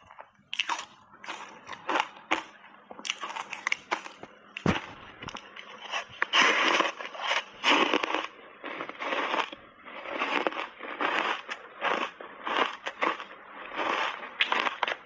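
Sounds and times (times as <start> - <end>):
ice being chewed: 0.0 - 15.0.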